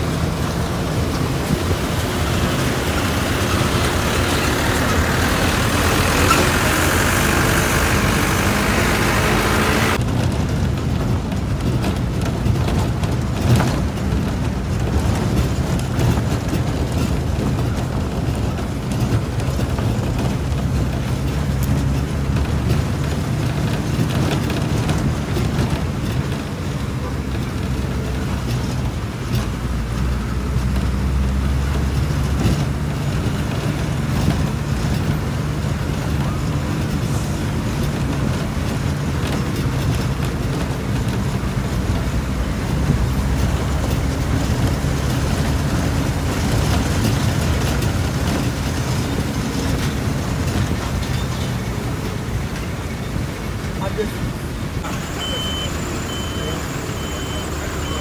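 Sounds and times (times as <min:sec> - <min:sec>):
road noise: 0:00.0 - 0:58.0
vehicle engine drone: 0:00.0 - 0:58.0.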